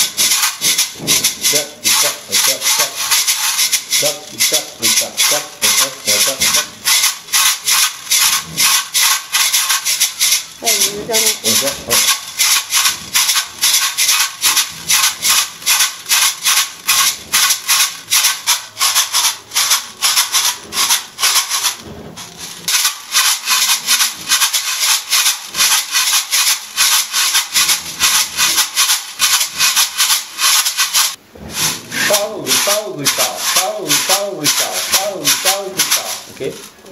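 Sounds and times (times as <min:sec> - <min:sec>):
tube shakers shaken rhythmically: 0:00.0 - 0:36.8.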